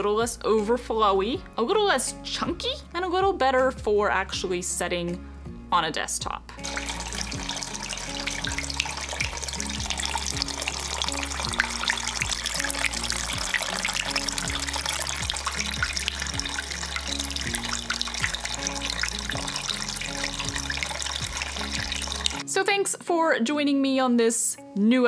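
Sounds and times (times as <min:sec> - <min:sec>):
background music: 0:00.0 - 0:25.0
water trickling onto pebbles: 0:06.6 - 0:22.4.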